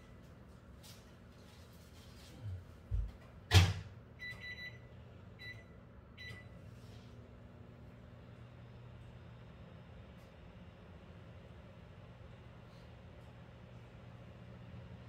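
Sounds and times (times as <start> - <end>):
microwave oven humming: 0.0 - 15.0
short keypad beeps: 4.2 - 4.8.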